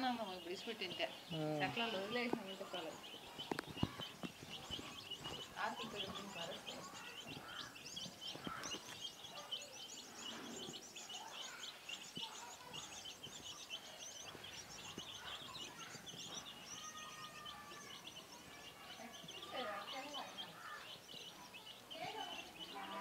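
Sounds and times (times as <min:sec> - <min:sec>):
chicks peeping: 0:00.0 - 0:23.0.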